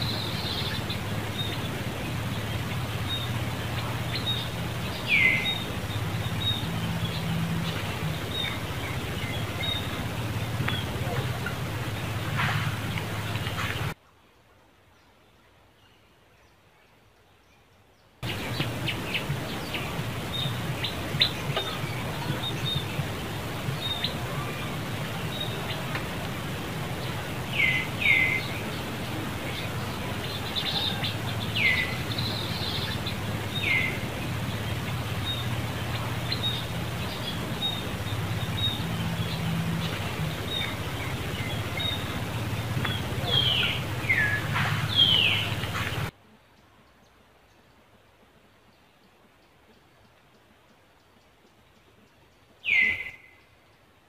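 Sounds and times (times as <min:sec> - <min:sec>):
high downward-sweeping chirping calls: 0:00.0 - 0:14.0, 0:18.2 - 0:46.1.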